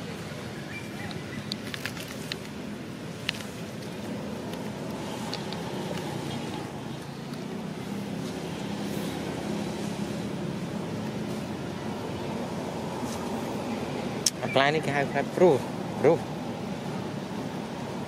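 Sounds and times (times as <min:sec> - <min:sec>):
sharp clicks: 0:04.5 - 0:06.6.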